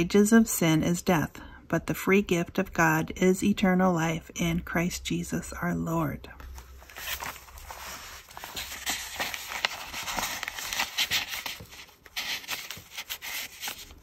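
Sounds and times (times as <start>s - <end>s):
paper rustling and scraping: 6.4s - 14.0s.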